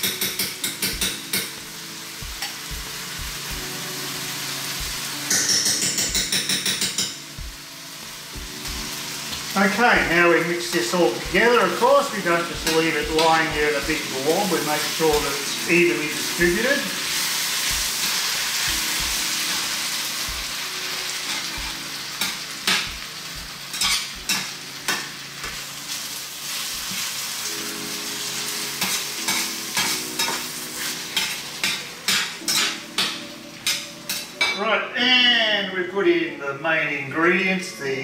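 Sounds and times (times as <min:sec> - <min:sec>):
vegetables sizzling in a frying pan: 0:00.0 - 0:34.6
utensil scraping a pan: 0:21.2 - 0:21.9.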